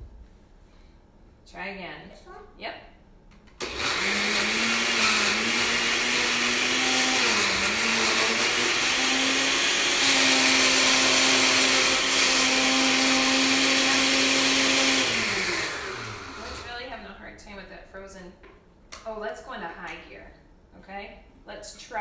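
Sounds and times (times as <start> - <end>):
blender motor running: 3.6 - 16.7.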